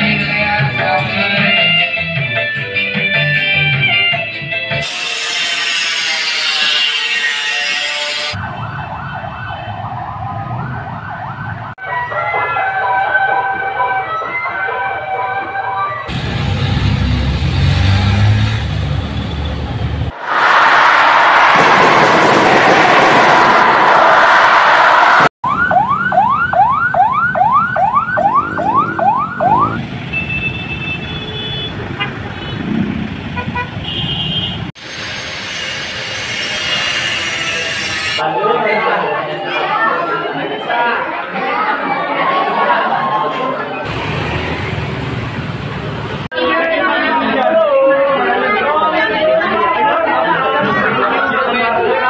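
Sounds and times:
angle grinder cutting metal: 4.8s - 8.4s, 34.8s - 38.2s
high horn-like tone: 4.8s - 8.4s
emergency vehicle siren yelping: 8.2s - 16.1s, 21.6s - 29.8s
low traffic rumble: 16.1s - 24.3s, 25.5s - 34.8s, 43.5s - 46.3s
electronic siren yelping: 25.4s - 30.4s.

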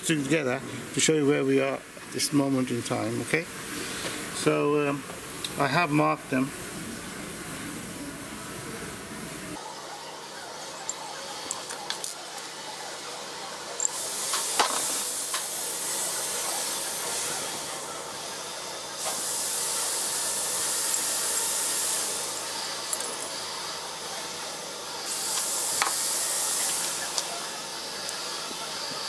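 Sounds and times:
high-pitched hissing: 9.2s - 29.0s.

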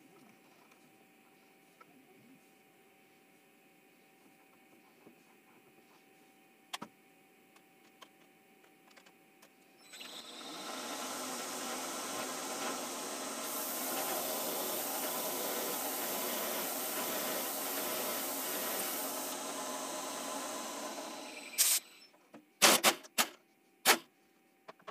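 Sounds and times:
milling machine drilling steel: 9.8s - 22.0s.

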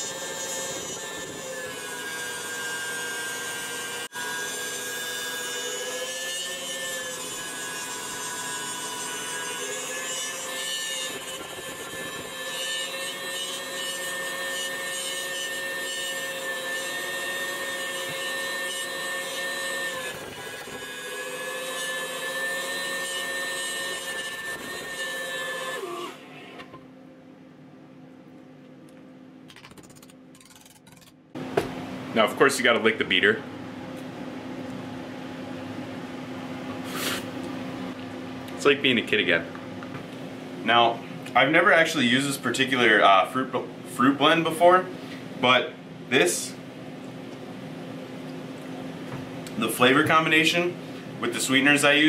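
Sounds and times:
stand mixer motor whining: 0.0s - 26.4s.

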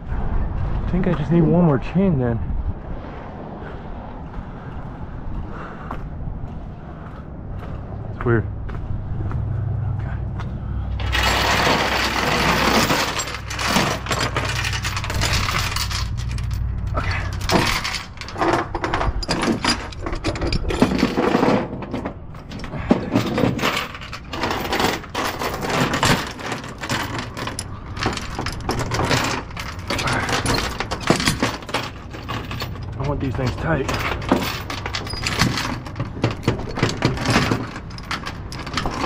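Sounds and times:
chain dragged over metal deck: 10.9s - 39.0s
metal chain clinking and rattling: 11.0s - 39.0s.

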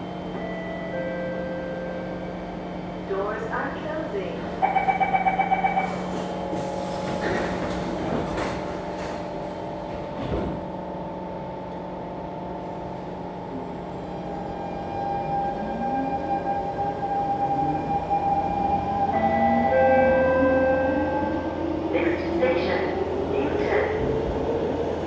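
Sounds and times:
train car humming: 0.0s - 25.0s
train doors clunking: 4.8s - 11.1s.

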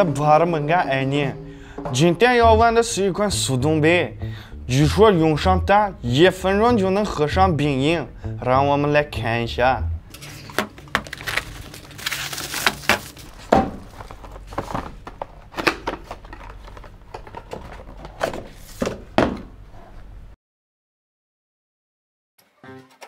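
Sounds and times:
blade slicing packing tape: 10.2s - 13.2s
knocks and thunks: 13.4s - 13.9s, 18.8s - 19.5s.

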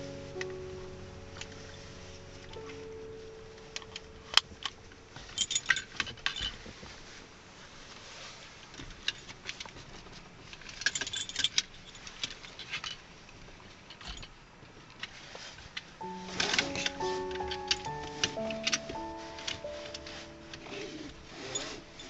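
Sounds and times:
metal harness hardware jingling: 5.2s - 6.6s, 10.8s - 12.9s.

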